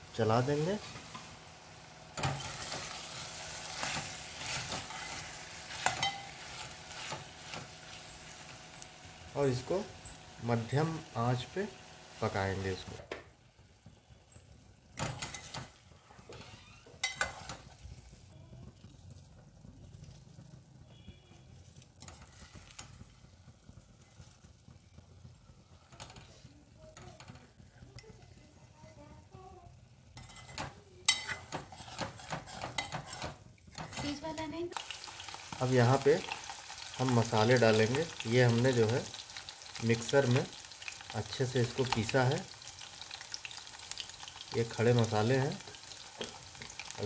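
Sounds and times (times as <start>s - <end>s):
faint sizzling: 0.0s - 47.0s
ladle stirring in a pot: 2.2s - 8.6s, 15.0s - 20.6s, 21.5s - 29.0s, 30.1s - 34.2s.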